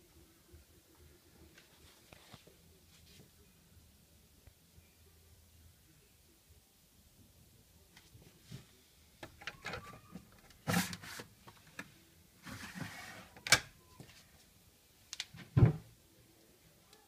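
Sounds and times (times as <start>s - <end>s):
plastic drawer sliding scrapes: 10.6s - 11.3s, 12.4s - 13.4s
drawer knocking shut: 15.5s - 15.8s.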